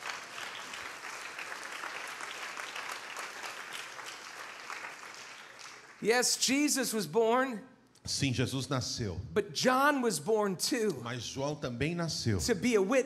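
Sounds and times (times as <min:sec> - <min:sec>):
congregation applauding: 0:00.0 - 0:06.4.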